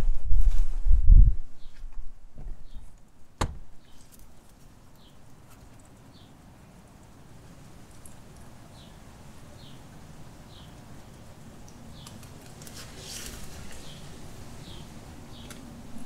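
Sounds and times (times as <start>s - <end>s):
crisp crunching and leaf rustling: 3.8s - 6.0s, 11.6s - 16.0s
guinea pigs chewing: 3.8s - 16.0s.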